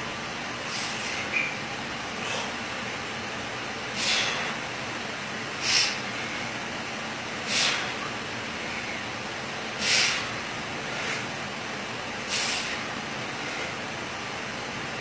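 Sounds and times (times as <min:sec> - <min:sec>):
steady background hiss: 0:00.0 - 0:15.0
sharp hissing exhalations: 0:00.6 - 0:01.4, 0:03.9 - 0:04.6, 0:05.6 - 0:06.5, 0:07.4 - 0:08.0, 0:09.8 - 0:11.3, 0:12.2 - 0:13.8.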